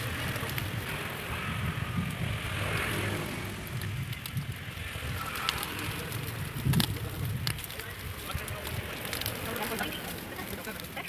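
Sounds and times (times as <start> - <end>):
low street rumble: 0.0 - 11.0
faint clicks: 3.7 - 11.0.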